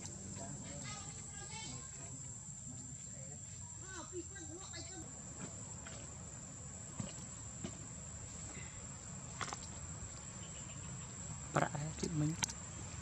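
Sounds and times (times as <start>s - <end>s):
faint ticks and rustles: 0.0s - 6.2s
high-pitched insect trill: 0.0s - 13.0s.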